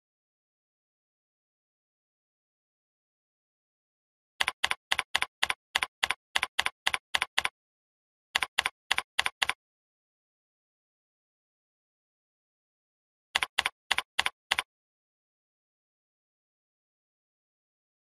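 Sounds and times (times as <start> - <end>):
keyboard keystrokes: 4.4 - 7.5, 8.4 - 9.6, 13.4 - 14.7.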